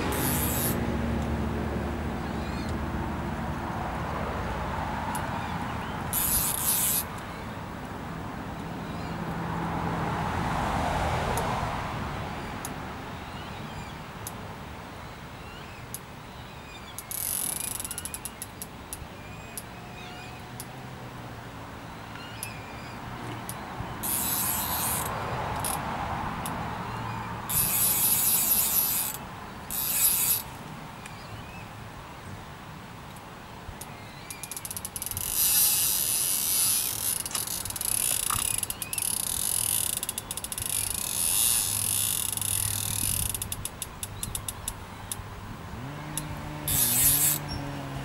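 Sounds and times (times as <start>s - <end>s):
fishing reel ratcheting: 0.0s - 0.8s, 6.1s - 7.2s, 17.0s - 18.7s, 24.0s - 25.8s, 27.5s - 30.6s, 34.3s - 44.8s, 46.2s - 47.5s.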